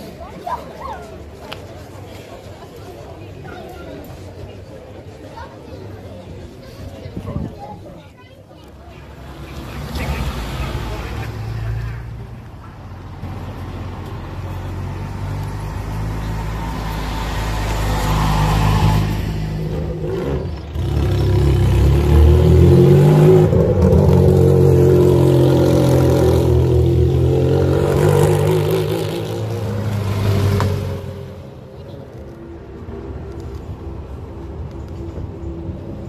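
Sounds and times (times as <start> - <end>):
race car engines passing: 8.6 - 36.0.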